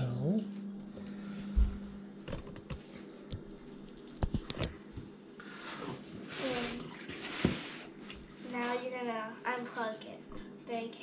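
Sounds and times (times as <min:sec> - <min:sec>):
soft scraping rustle: 0:05.4 - 0:08.9.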